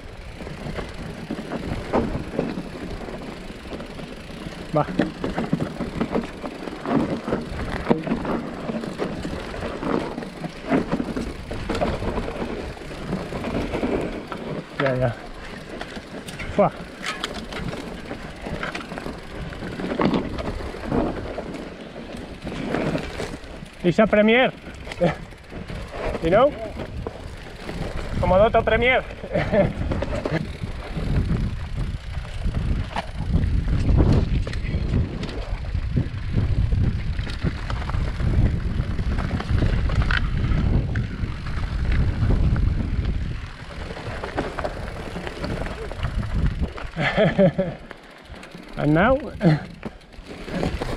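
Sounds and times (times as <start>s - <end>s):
bike tyres crunching and rattling: 0.0s - 50.9s
wind rumble on microphone: 24.6s - 47.8s.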